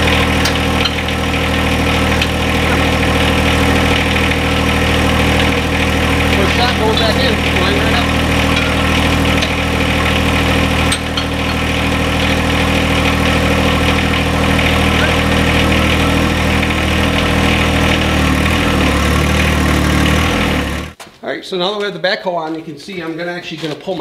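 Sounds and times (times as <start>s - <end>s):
diesel tractor engine idling: 0.0s - 21.0s.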